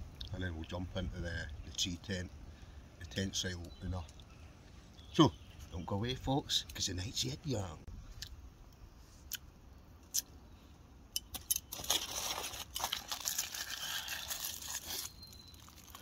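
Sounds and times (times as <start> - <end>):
aluminium foil crinkling: 11.3 - 16.0.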